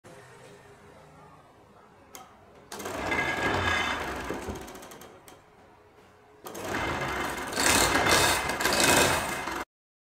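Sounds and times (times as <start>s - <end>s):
wood lathe whining: 2.8s - 5.0s, 6.5s - 9.6s.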